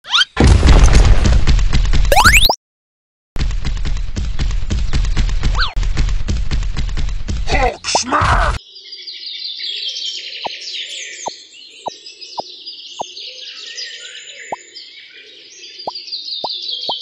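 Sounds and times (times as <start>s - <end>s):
small birds chirping: 7.7s - 17.0s.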